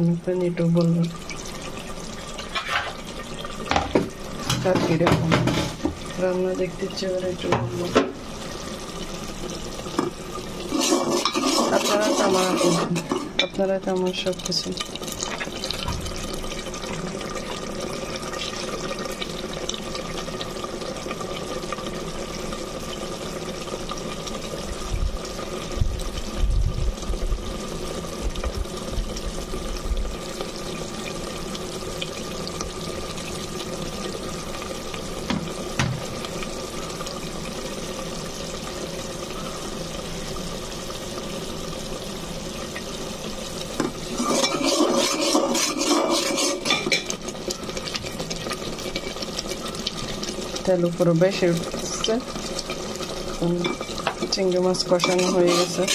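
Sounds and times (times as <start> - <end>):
curry bubbling in a pot: 0.0 - 55.9
spoon stirring and scraping pot: 2.4 - 3.1, 10.0 - 13.6, 43.8 - 50.4, 53.6 - 55.9.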